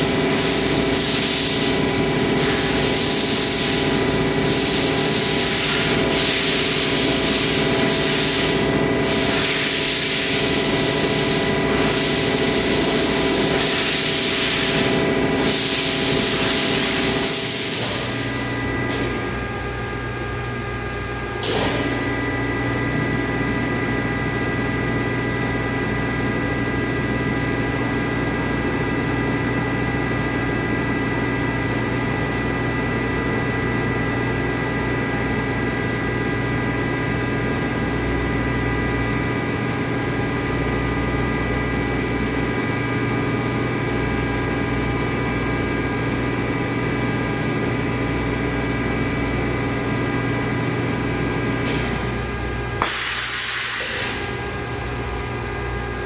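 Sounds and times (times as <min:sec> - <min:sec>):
pump droning: 0:00.0 - 0:29.2.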